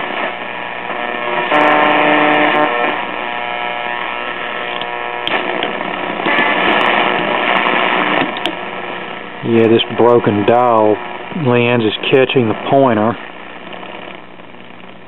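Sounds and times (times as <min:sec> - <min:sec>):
held tone with overtones: 0:00.0 - 0:15.0
radio static and hiss: 0:00.0 - 0:15.0
sharp clicks: 0:04.7 - 0:06.8, 0:07.5 - 0:08.6.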